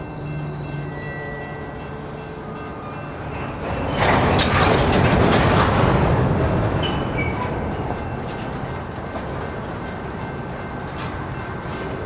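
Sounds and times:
high wheel squeal: 0:00.0 - 0:01.8, 0:06.8 - 0:07.6
freight cars rolling and rattling: 0:00.0 - 0:12.0.

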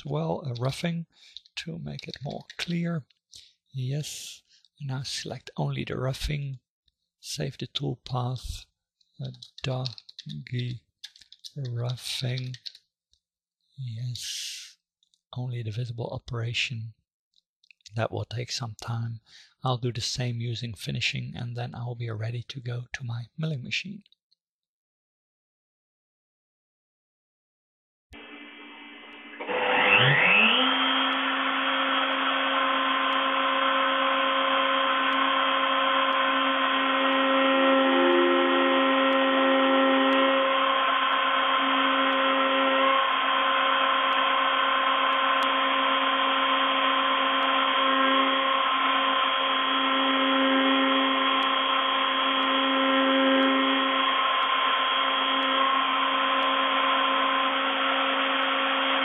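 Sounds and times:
milling machine spindle whine: 0:00.0 - 0:02.9, 0:28.2 - 0:59.0
end mill cutting block: 0:28.2 - 0:59.0.

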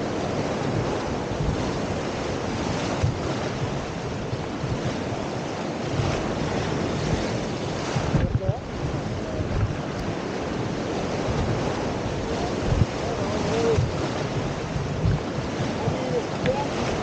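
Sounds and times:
whitewater rapids rushing: 0:00.0 - 0:17.0
wind buffeting microphone: 0:00.0 - 0:17.0.

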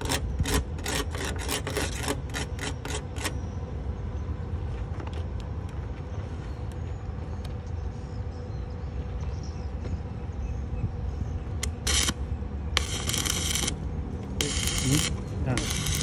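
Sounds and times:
low machine hum: 0:00.0 - 0:16.0
welding arc crackling: 0:11.6 - 0:12.2, 0:12.8 - 0:16.0.

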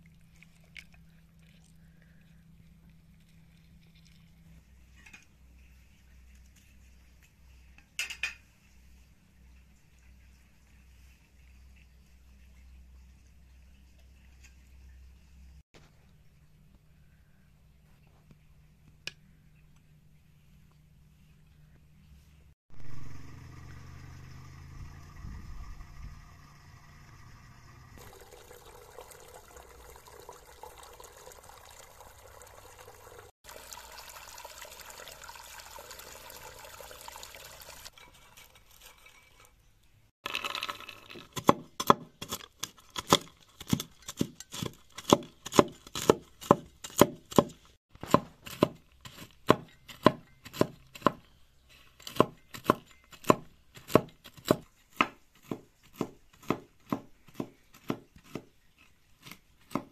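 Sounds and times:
knife chopping on wooden board: 0:43.0 - 0:51.2, 0:52.1 - 0:58.5, 0:59.2 - 0:59.9.

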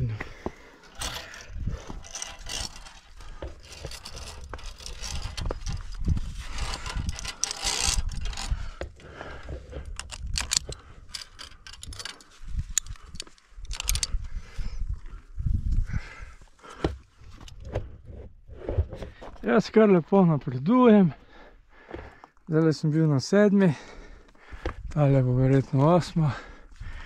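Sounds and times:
carabiners clinking on steel cable: 0:00.8 - 0:14.2
sharp metallic clicks: 0:09.9 - 0:14.2.

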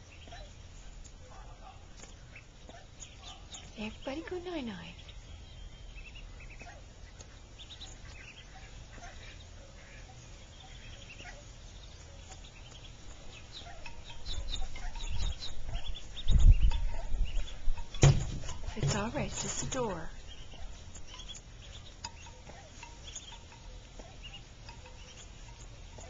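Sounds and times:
ducklings peeping: 0:00.0 - 0:26.0
low rumbling thuds from door: 0:16.3 - 0:19.9.

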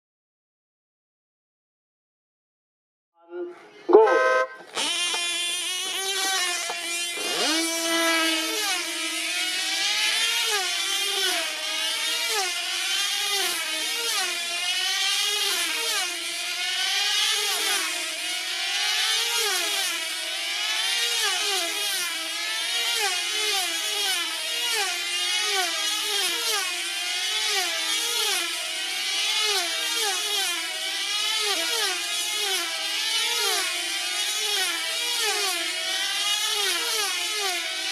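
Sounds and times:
model aircraft engines whining: 0:03.9 - 0:14.2.

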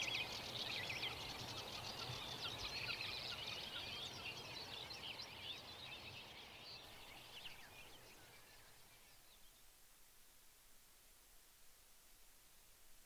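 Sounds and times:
small birds chirping and trilling: 0:00.0 - 0:09.8.

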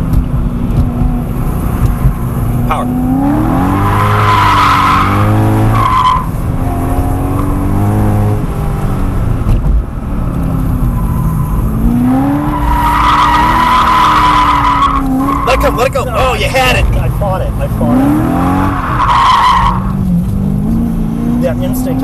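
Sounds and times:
car engine revving: 0:00.0 - 0:22.0
tyres squealing: 0:12.4 - 0:17.2.

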